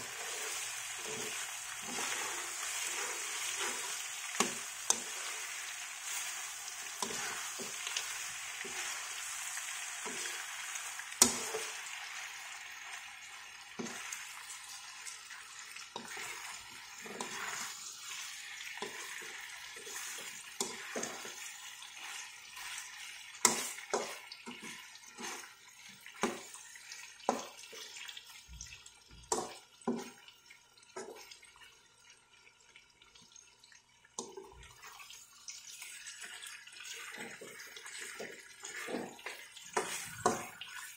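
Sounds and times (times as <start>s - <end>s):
meat sizzling in a wok: 0.0s - 28.6s, 34.8s - 40.9s
metal spatula scraping and knocking: 6.9s - 8.0s, 15.9s - 17.8s, 18.8s - 25.5s, 37.1s - 40.9s.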